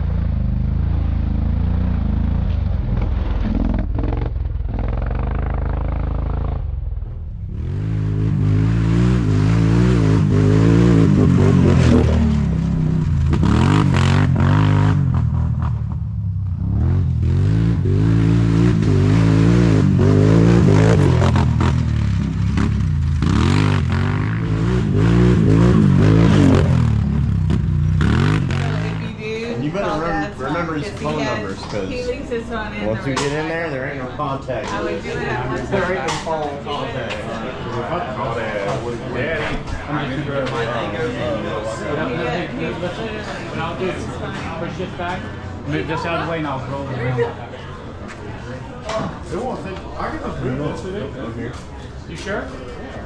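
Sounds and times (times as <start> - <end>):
quad bike engine revving: 0.0 - 29.2
distant steady engine: 0.0 - 29.5.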